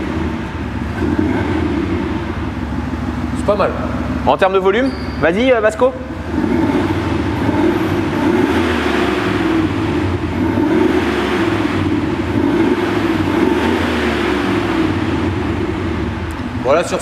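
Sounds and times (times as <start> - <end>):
synthetic engine rumble from speaker: 0.0 - 17.0.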